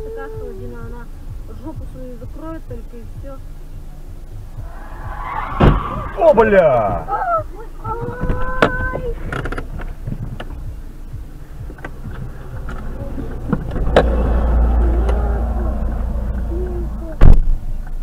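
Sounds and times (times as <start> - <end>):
low rumble: 0.0 - 18.0
steady tone: 3.2 - 8.0, 10.5 - 17.2
loud sharp bang: 4.9 - 7.0.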